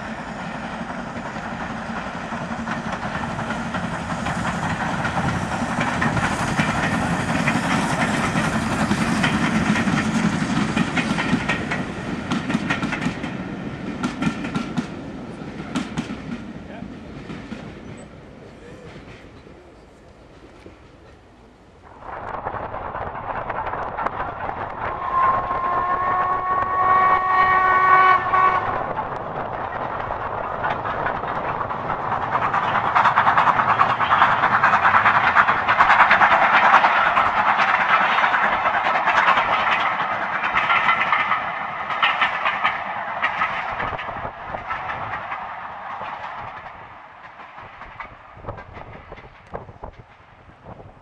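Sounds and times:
train wheel clatter: 0.0s - 21.3s, 22.6s - 51.0s
steam locomotive whistle: 24.8s - 28.9s.

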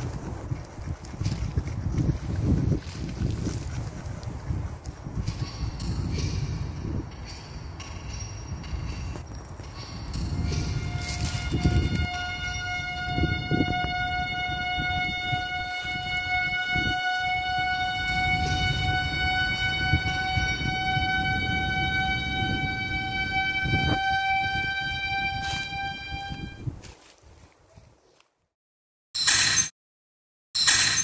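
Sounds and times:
sustained drone tone: 7.6s - 26.6s.

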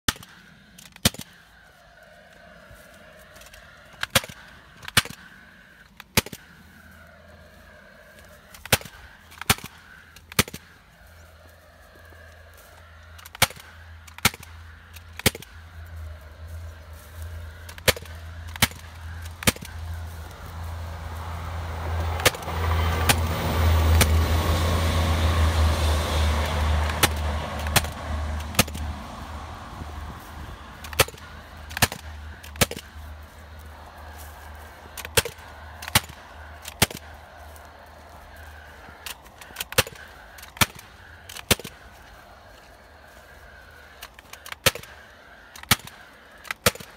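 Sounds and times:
fencing stapler firing cracks: 4.0s - 5.2s, 6.0s - 6.5s, 8.5s - 9.7s, 13.2s - 15.5s, 26.8s - 28.8s, 30.8s - 32.9s, 44.0s - 45.0s, 45.6s - 46.9s
low rumble: 6.4s - 43.9s.

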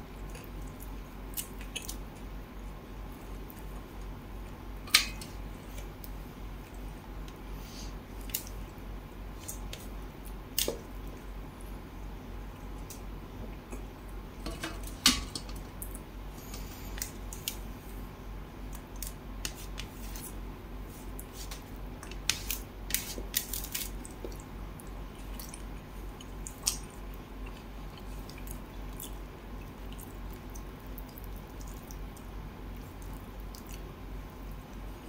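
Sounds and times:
wet squishes of fingers in food: 18.6s - 34.0s.

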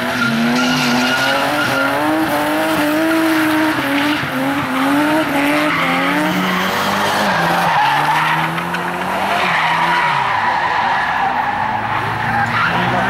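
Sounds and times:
car engine at high revs: 0.0s - 13.0s
tyres squealing: 0.1s - 2.3s.

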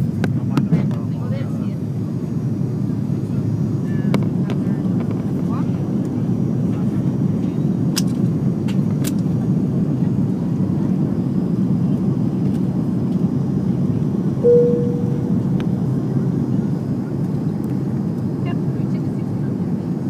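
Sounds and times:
airplane cabin rumble: 13.9s - 17.2s
short single tone: 14.4s - 15.6s.

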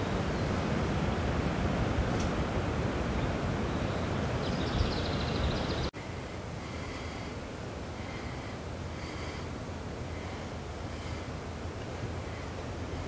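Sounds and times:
wind-like rustling: 0.0s - 13.0s
high-pitched bird calls: 3.7s - 5.9s.

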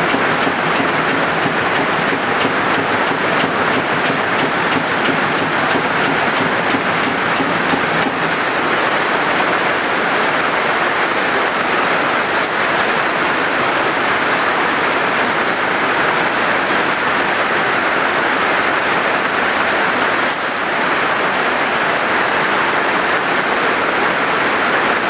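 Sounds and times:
factory machinery noise: 0.0s - 25.0s
short hiss: 20.3s - 20.9s.

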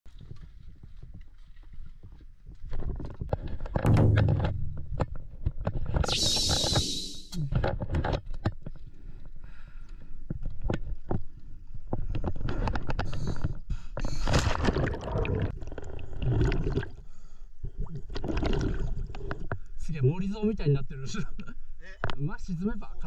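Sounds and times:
knocks and scrapes: 2.6s - 8.8s
water splashing and sloshing: 10.2s - 19.8s.

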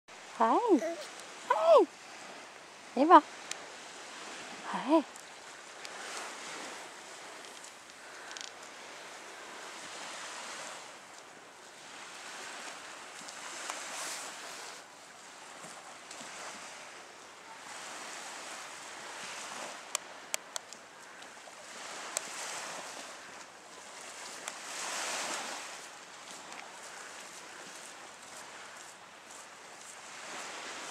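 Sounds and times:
small waves washing onto beach: 0.1s - 30.9s.

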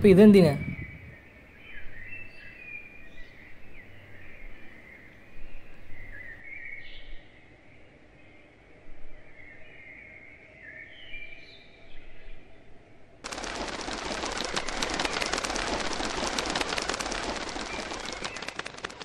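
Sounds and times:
small birds chirping: 0.0s - 8.6s, 13.4s - 19.0s
loud rattling clatter of cracks: 13.3s - 19.0s.

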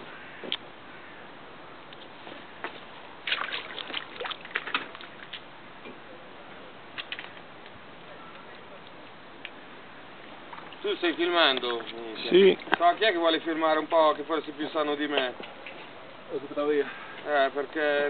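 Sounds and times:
water lapping against boat hull: 2.6s - 5.9s, 10.3s - 14.0s.

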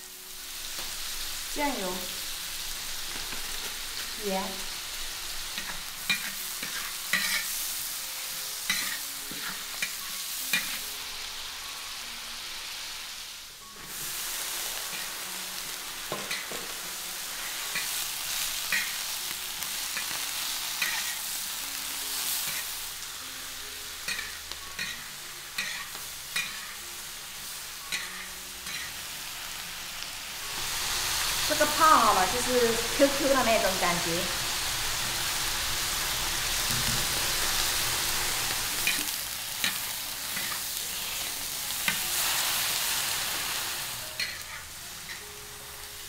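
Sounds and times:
food sizzling in pan: 0.0s - 46.0s
spatula scraping and clacking pan: 5.5s - 7.6s, 8.6s - 10.8s, 16.1s - 16.8s, 20.8s - 21.2s, 24.1s - 26.8s, 38.8s - 42.1s, 44.2s - 45.2s.

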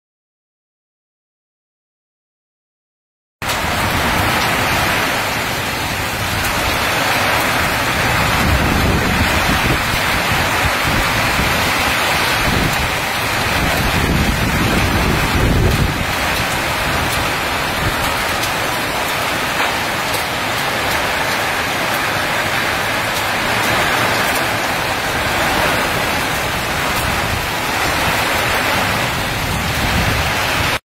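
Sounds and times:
heavy rain pouring: 3.4s - 30.8s
low rumbling wind or thunder: 3.4s - 30.8s.

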